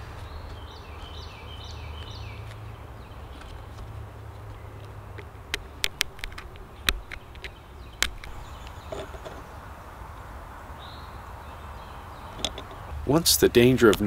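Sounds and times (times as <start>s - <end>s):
flint flakes snapping clicks: 4.8s - 8.8s.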